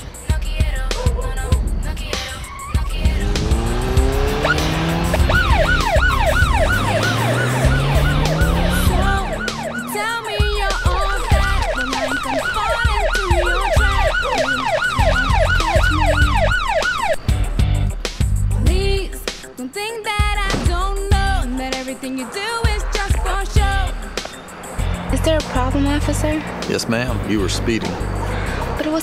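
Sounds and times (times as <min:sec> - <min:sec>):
car engine revving: 0:01.1 - 0:19.0, 0:20.8 - 0:29.0
police siren yelping: 0:02.2 - 0:17.4
music with stepping bass line: 0:02.8 - 0:09.8, 0:10.4 - 0:16.5, 0:17.3 - 0:19.4.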